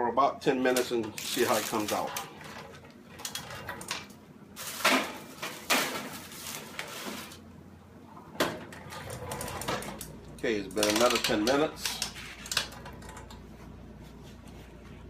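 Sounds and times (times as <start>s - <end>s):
paper rustling: 1.2s - 2.2s
metal baking pan scraping: 1.3s - 2.8s.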